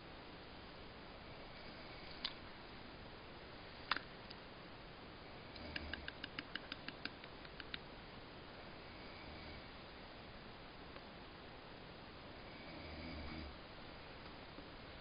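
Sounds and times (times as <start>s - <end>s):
steady hiss: 0.0s - 15.0s
sharp click: 5.6s - 7.8s
mouth clicks: 5.6s - 7.9s.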